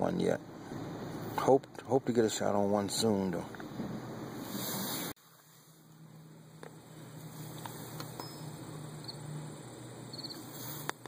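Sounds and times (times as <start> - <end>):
steady low hum: 0.0 - 4.6, 5.2 - 11.0
faint high bird chirps: 8.1 - 9.2, 10.1 - 10.4.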